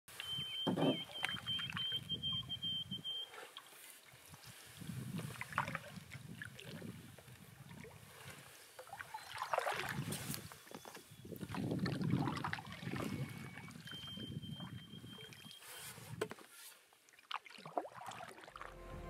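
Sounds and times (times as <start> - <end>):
water lapping against canoe: 0.1 - 18.9
thin high-pitched note: 18.6 - 19.0.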